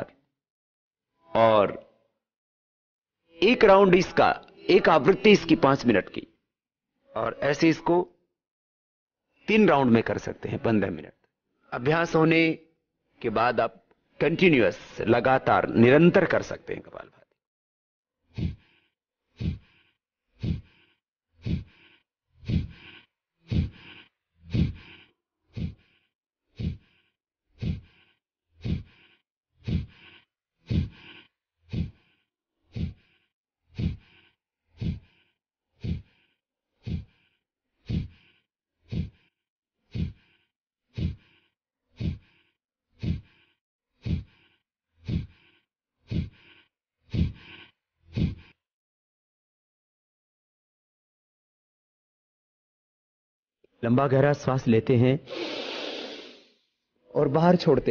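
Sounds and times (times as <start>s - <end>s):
forceful nasal exhalations: 18.3s - 48.6s, 55.3s - 56.7s.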